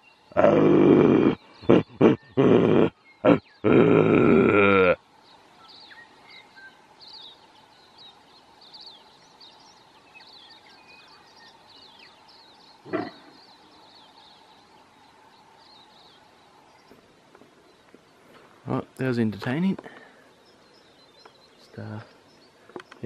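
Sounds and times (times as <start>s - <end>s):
birdsong chirps: 0.0s - 23.0s
deer stag grunting roar: 0.3s - 5.0s, 12.9s - 13.4s.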